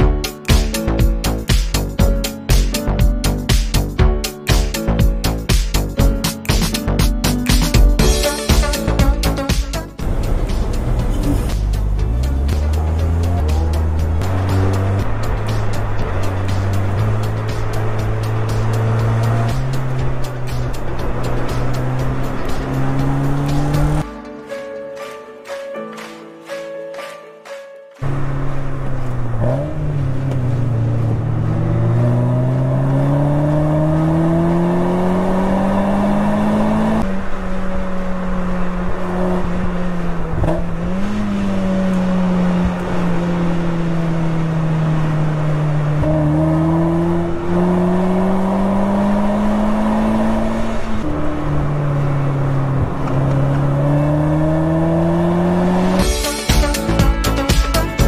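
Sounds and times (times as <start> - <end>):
car engine revving hard: 10.0 - 24.0, 28.0 - 56.4.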